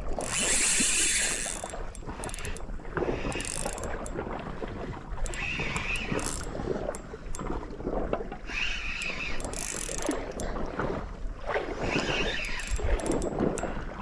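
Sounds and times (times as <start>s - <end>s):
fishing reel winding with clicks: 0.0s - 4.2s, 5.2s - 7.5s, 8.4s - 10.6s, 11.8s - 13.8s
sea water washing against rocks: 0.0s - 14.0s.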